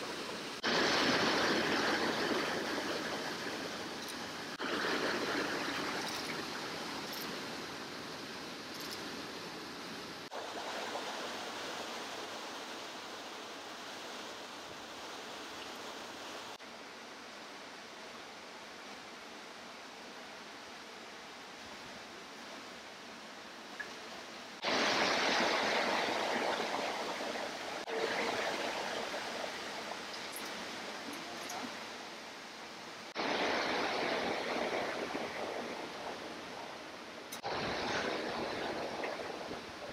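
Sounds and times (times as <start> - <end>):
rushing creek water: 0.0 - 39.9.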